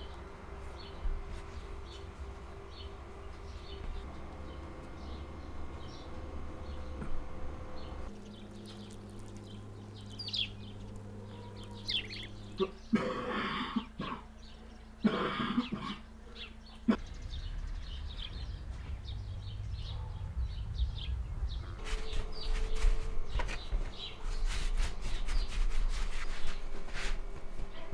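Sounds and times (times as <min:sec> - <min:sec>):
small birds chirping: 0:00.0 - 0:13.0, 0:13.8 - 0:26.7
person coughing: 0:12.6 - 0:14.3, 0:15.0 - 0:16.1.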